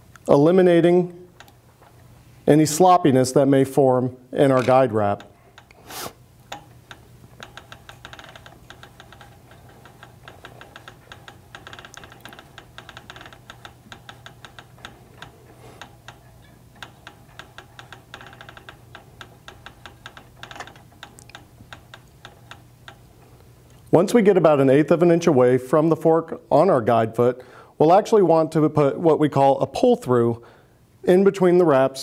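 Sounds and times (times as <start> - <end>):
rapid light clicking: 1.3 - 1.6, 4.6 - 5.8, 6.4 - 23.9.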